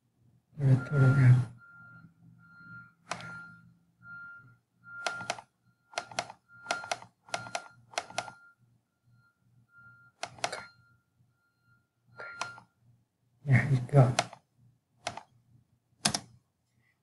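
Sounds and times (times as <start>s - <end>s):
mouse double-clicks: 5.0s - 8.4s, 10.2s - 10.7s, 15.0s - 15.3s.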